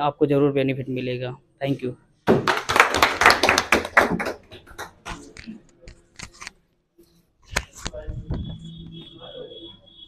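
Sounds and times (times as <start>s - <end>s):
sharp knock: 2.3s - 2.6s
people clapping: 2.3s - 5.5s.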